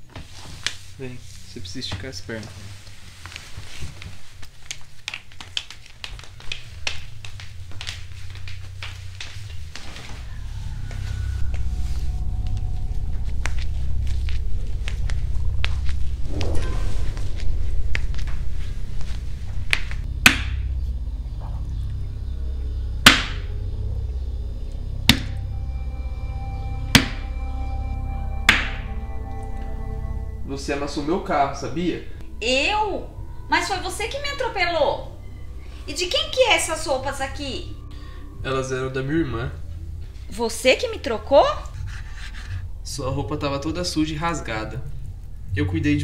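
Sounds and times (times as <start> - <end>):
background music with low drone: 0.0 - 46.0
flip-flop footsteps on tile: 3.4 - 10.3
low steady hum: 6.2 - 46.0.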